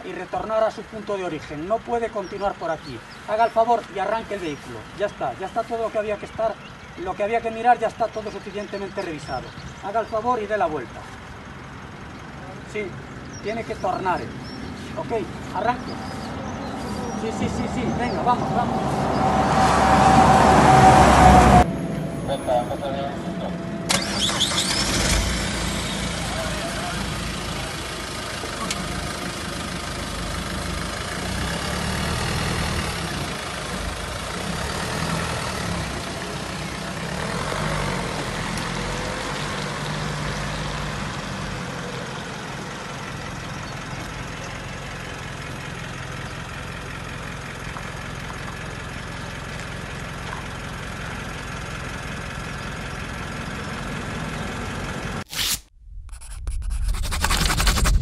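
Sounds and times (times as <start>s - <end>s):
road traffic noise: 0.0s - 58.0s
car engine running: 10.8s - 34.6s, 55.9s - 58.0s.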